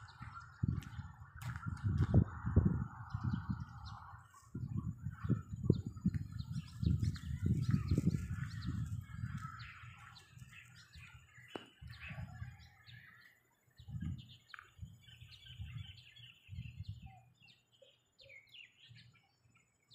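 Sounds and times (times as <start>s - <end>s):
small birds chirping: 0.0s - 19.9s.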